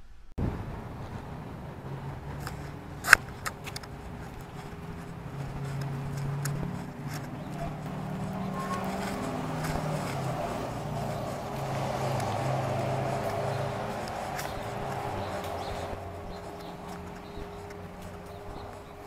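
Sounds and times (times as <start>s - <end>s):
street traffic hum: 0.4s - 19.0s
camera handling and footsteps: 2.3s - 19.0s
sharp clicks and taps: 2.4s - 19.0s.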